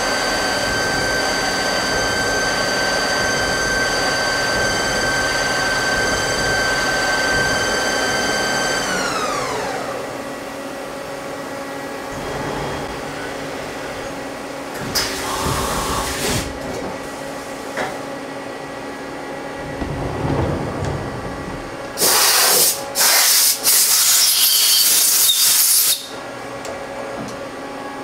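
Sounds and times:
lathe running with coolant spraying: 0.0s - 18.0s, 18.8s - 26.1s
compressed air blasts: 21.9s - 24.4s.

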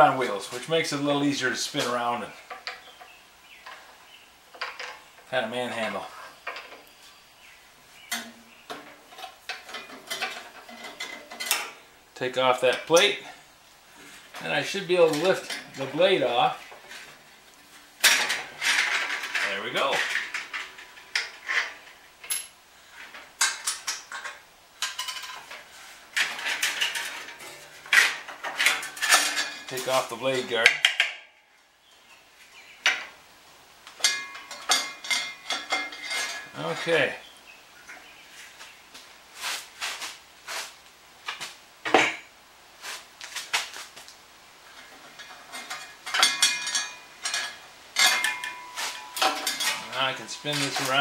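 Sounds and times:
metal parts clinking and rattling: 8.1s - 11.8s, 18.0s - 25.6s, 26.2s - 31.2s, 34.0s - 36.9s, 44.8s - 51.0s
metallic clinks and rattles: 44.8s - 51.0s
metallic ringing: 45.6s - 51.0s.

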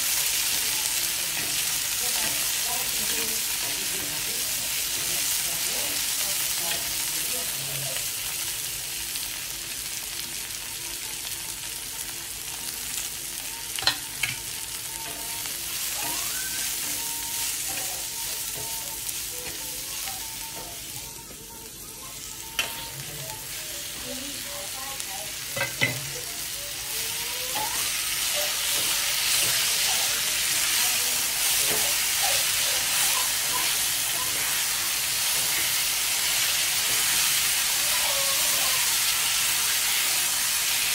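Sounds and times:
food sizzling on hot pan: 0.0s - 40.9s
metal spatula scraping: 13.7s - 24.8s, 25.4s - 36.2s.

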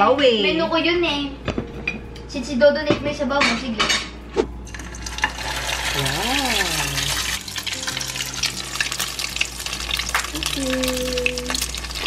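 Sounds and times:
oil sizzling and crackling: 4.7s - 12.0s.

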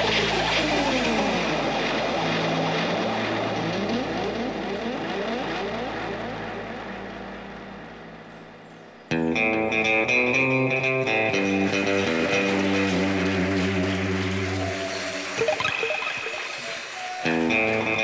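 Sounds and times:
electronic sweeping pitch glides: 0.0s - 8.8s, 15.3s - 18.0s
steady low hum: 0.0s - 9.9s.

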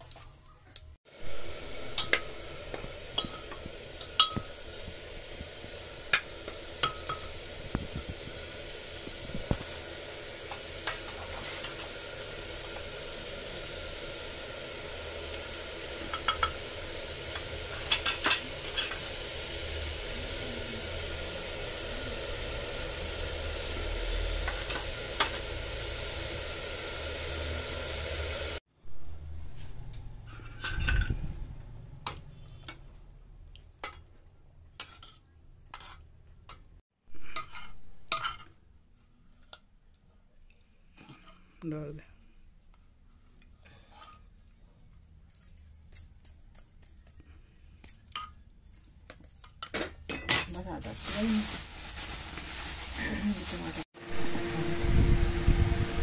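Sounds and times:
onions sizzling in oil: 1.1s - 32.9s, 35.8s - 39.6s, 50.1s - 56.0s.

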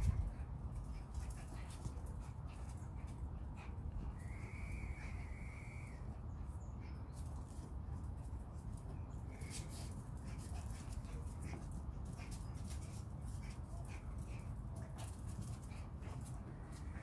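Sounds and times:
dog paws clicking on stone: 0.0s - 3.2s, 7.1s - 17.0s.

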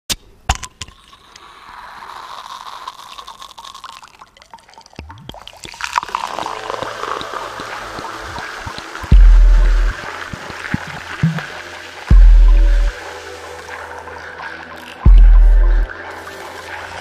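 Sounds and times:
crackling noisy texture: 0.1s - 17.0s
experimental electronic music: 5.0s - 17.0s.

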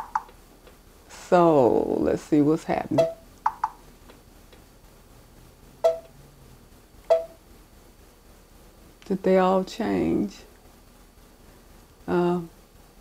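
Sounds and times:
stylus tapping touchscreen: 3.0s - 3.8s, 5.8s - 6.1s, 7.1s - 7.4s
short beeps: 5.8s - 6.1s, 7.1s - 7.4s.

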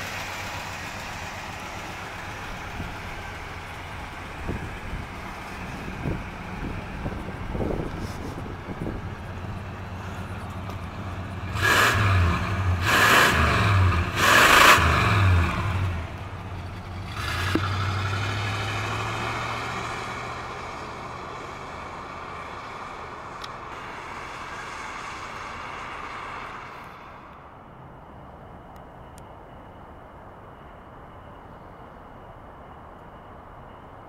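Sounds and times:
car accelerating away: 10.7s - 21.8s
car engine revving: 11.0s - 20.8s.

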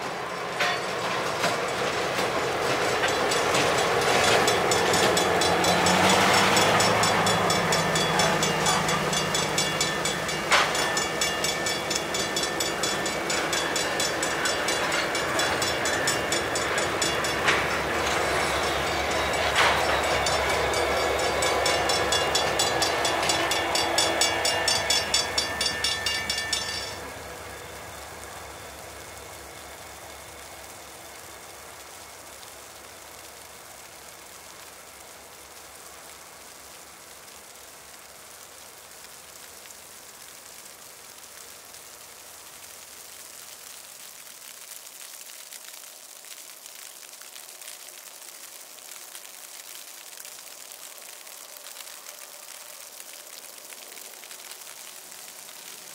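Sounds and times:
freight train rumbling: 0.0s - 32.3s
faint steady hiss: 0.0s - 55.9s
crossing bell ringing: 0.5s - 29.5s.

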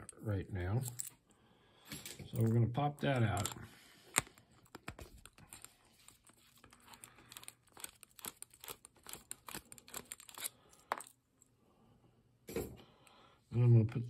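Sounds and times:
metal clicks and scrapes: 3.0s - 11.1s.

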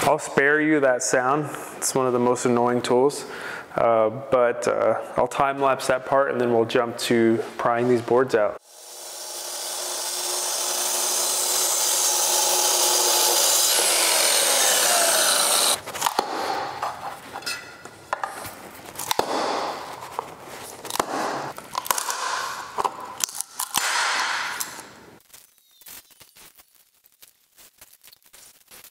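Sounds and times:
track saw cutting wood: 8.6s - 15.8s
floorboards cracking and creaking: 15.8s - 28.9s.

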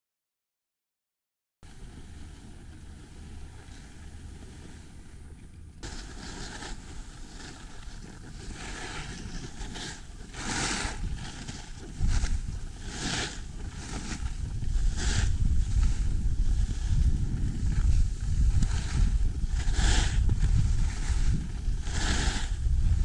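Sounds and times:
wind rushing over microphone: 1.6s - 23.0s
skis hissing on packed snow: 5.8s - 23.0s.

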